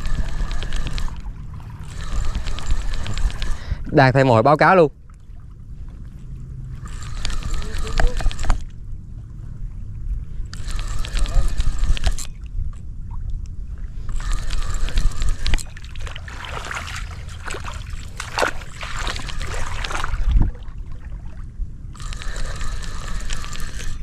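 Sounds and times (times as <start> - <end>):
fishing reel whirring: 0.0 - 4.7, 6.8 - 8.8, 10.4 - 12.4, 14.0 - 20.3, 21.9 - 24.0
reel clicks: 0.0 - 5.2, 6.8 - 8.8, 10.4 - 20.2, 21.9 - 24.0
wind rumble on microphone: 0.0 - 15.8, 16.6 - 22.0.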